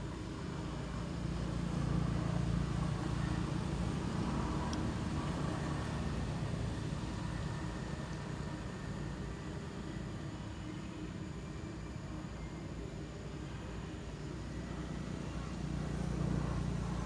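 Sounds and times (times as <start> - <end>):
distant vehicle passing: 1.0 - 9.5.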